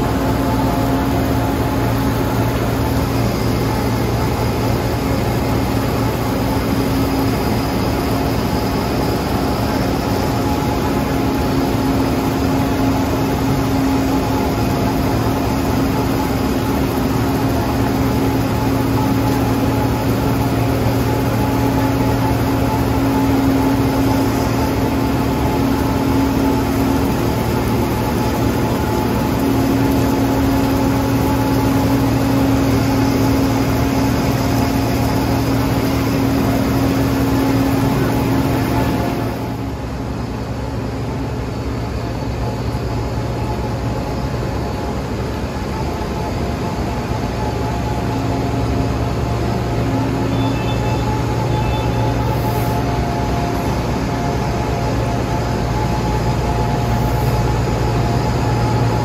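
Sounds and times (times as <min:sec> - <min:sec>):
heavy diesel machinery droning: 0:00.0 - 0:59.0.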